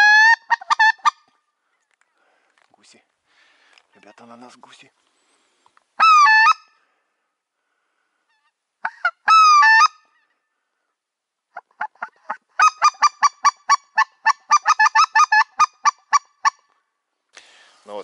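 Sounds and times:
geese yelping calls: 0:00.0 - 0:01.4, 0:06.0 - 0:06.8, 0:08.3 - 0:10.4, 0:11.5 - 0:16.8.

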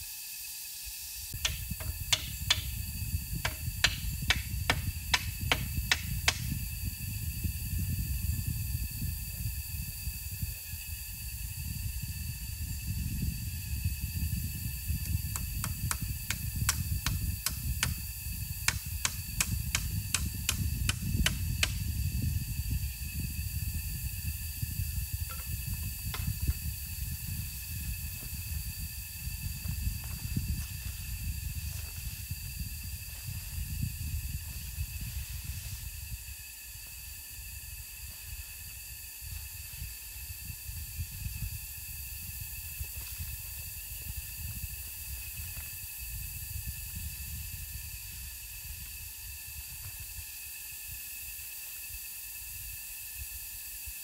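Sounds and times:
tool knocking on wood: 0:01.4 - 0:02.8, 0:03.4 - 0:06.5, 0:18.7 - 0:21.8.

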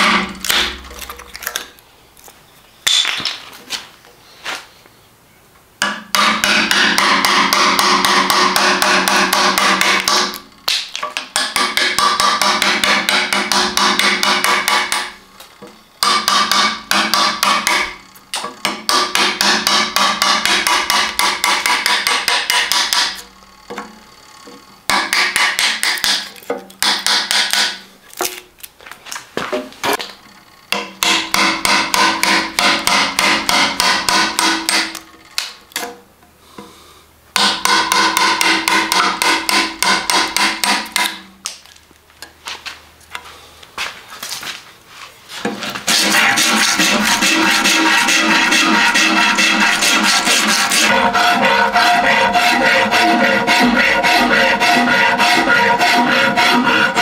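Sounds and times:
chisel struck into wood: 0:05.8 - 0:15.2, 0:16.0 - 0:24.0, 0:24.9 - 0:27.8, 0:30.7 - 0:35.0, 0:37.4 - 0:41.2.

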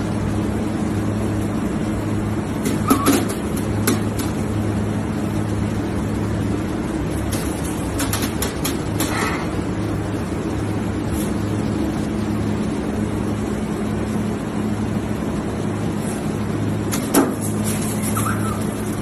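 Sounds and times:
low machine hum: 0:00.0 - 0:19.0
noisy hiss: 0:00.0 - 0:19.0
short squeak: 0:18.0 - 0:18.7.

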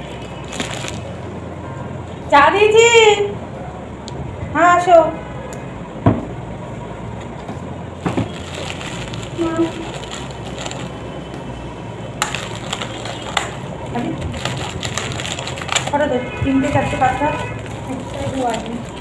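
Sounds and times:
plastic snack packet crinkling: 0:00.0 - 0:01.2, 0:08.3 - 0:11.4, 0:12.2 - 0:19.0.

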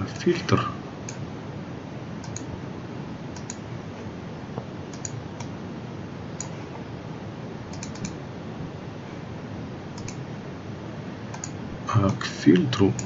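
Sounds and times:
low background hiss: 0:00.0 - 0:13.0
computer mouse clicking: 0:02.2 - 0:02.5, 0:03.4 - 0:03.6, 0:04.9 - 0:05.6, 0:06.4 - 0:06.6, 0:07.7 - 0:08.2, 0:10.0 - 0:10.2, 0:11.3 - 0:12.2.

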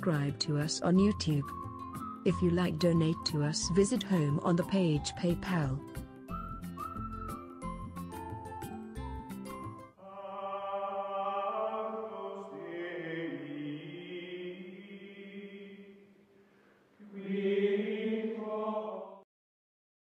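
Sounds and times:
choir singing held chords: 0:10.0 - 0:16.1, 0:17.0 - 0:19.2.

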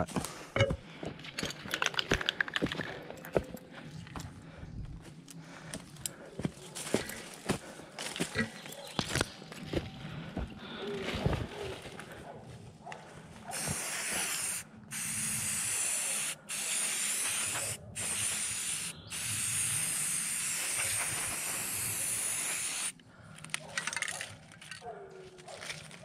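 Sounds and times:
spray paint can hissing: 0:13.5 - 0:23.0.

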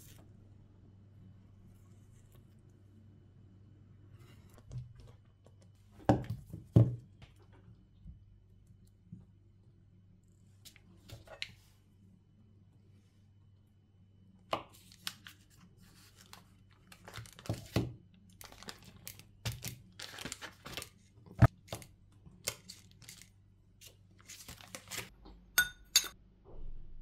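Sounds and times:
paper wrapper crinkling: 0:14.7 - 0:25.1
spoon clinking on ceramic bowl: 0:25.6 - 0:26.2.

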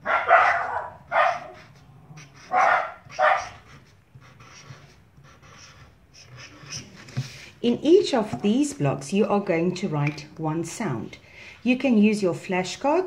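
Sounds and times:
dog barking: 0:00.0 - 0:01.7, 0:02.4 - 0:03.6.

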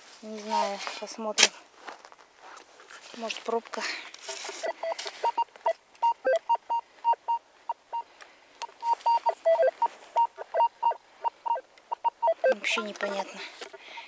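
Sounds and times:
metal detector beeps: 0:00.4 - 0:00.8, 0:04.6 - 0:08.0, 0:08.6 - 0:14.0.

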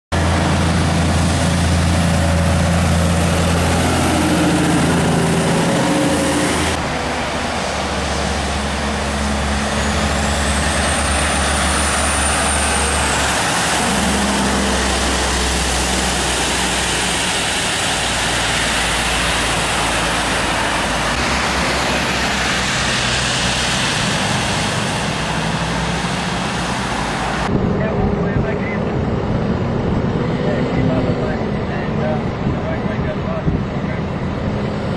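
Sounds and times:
heavy truck diesel engine running: 0:00.1 - 0:34.9
road traffic noise: 0:00.1 - 0:34.9.

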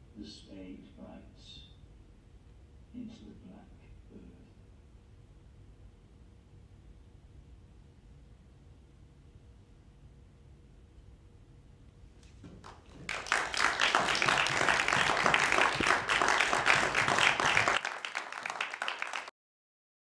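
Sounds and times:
audience applause: 0:12.6 - 0:19.3.

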